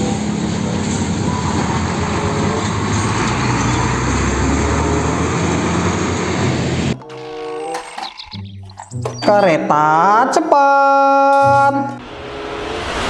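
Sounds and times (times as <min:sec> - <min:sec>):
truck diesel engine passing: 0:00.0 - 0:07.0
tyre and road noise: 0:00.0 - 0:09.6.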